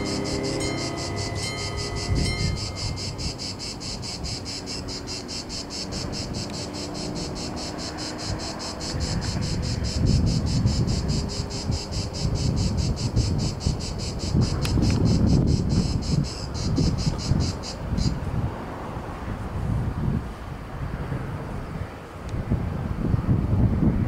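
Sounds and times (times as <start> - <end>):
cicadas chirring: 0.0 - 18.3
wind buffeting microphone: 0.0 - 24.0.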